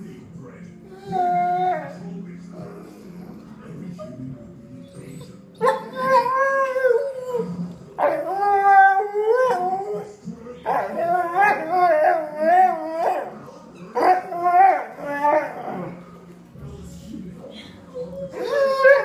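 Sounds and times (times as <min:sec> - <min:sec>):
dog howling: 0:00.9 - 0:03.4, 0:04.8 - 0:16.0, 0:18.0 - 0:19.0.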